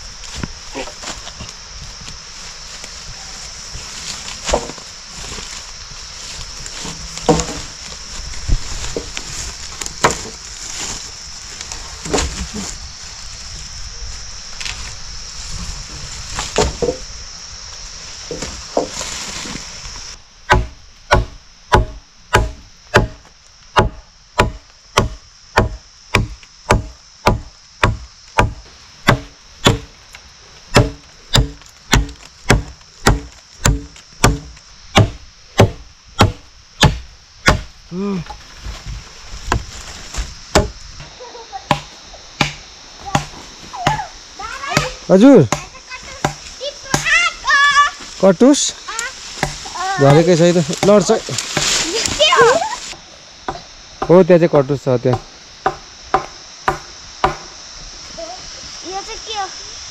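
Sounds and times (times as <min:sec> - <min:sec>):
steady high hiss: 0:00.0 - 0:59.9
wood chopping with blade: 0:04.4 - 0:04.8, 0:06.8 - 0:07.7, 0:09.9 - 0:10.4, 0:16.4 - 0:17.0, 0:20.5 - 0:29.9, 0:30.7 - 0:37.7, 0:39.5 - 0:41.1, 0:41.7 - 0:44.0, 0:44.7 - 0:47.1, 0:49.4 - 0:49.7, 0:50.8 - 0:52.1, 0:55.1 - 0:57.5.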